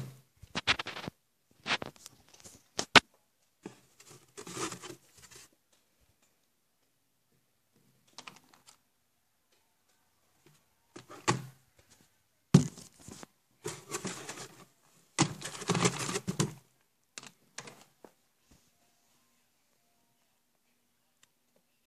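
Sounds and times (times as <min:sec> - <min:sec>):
cardboard box rustling: 0:03.7 - 0:05.5, 0:12.6 - 0:16.6
objects thudding on wooden desk: 0:12.6 - 0:12.9.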